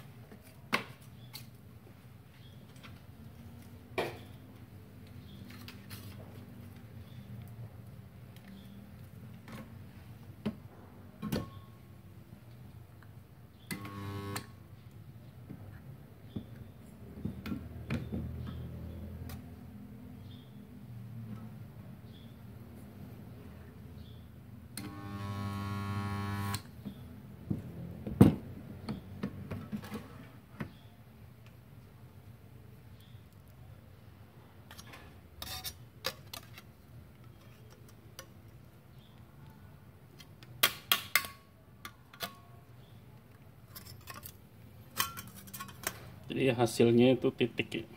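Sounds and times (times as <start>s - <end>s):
welder transformer hum: 13.7s - 14.6s, 24.8s - 26.7s.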